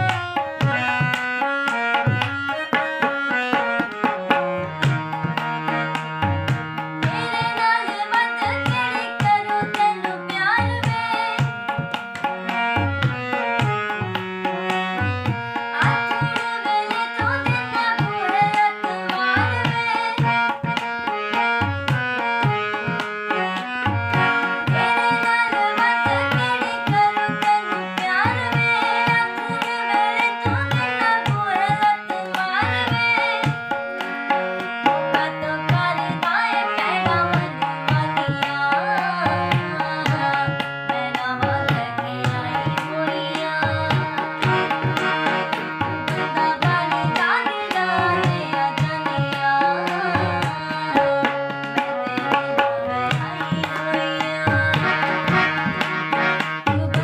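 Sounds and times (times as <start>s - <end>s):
harmonium chords: 0.0s - 57.0s
girl singing: 7.0s - 11.8s, 15.2s - 20.6s, 24.7s - 33.7s, 34.8s - 55.7s.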